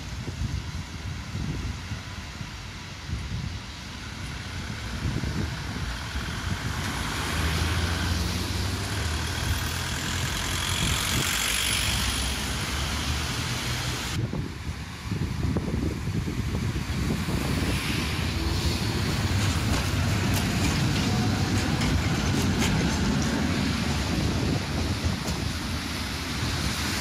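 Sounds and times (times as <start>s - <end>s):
wind on microphone: 0.0s - 27.0s
vehicle passing close by: 5.3s - 14.2s.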